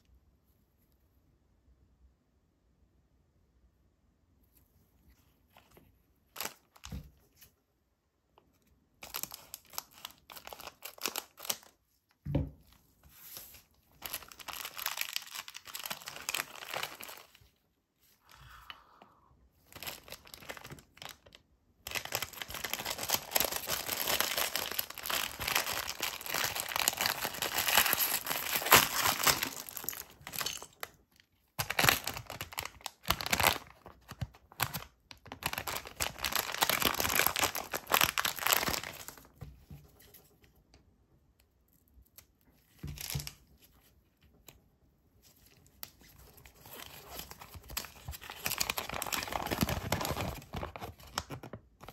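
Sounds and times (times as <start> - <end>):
plastic bag tearing and crinkling: 14.0 - 17.4, 19.7 - 21.3, 21.9 - 30.9, 31.6 - 39.3, 46.3 - 51.5.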